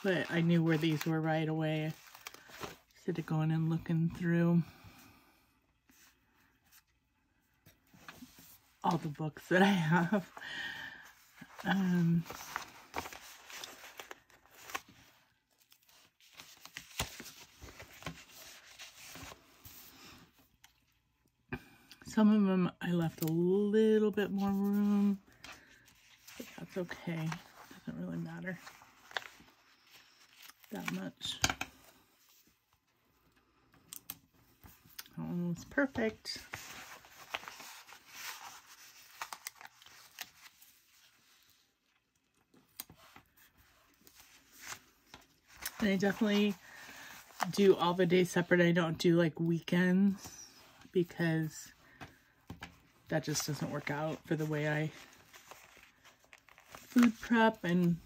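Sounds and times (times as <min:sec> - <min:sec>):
paper rustling: 0:00.0 - 0:03.0, 0:09.8 - 0:20.8, 0:24.3 - 0:32.7, 0:34.0 - 0:47.9, 0:50.2 - 0:58.0.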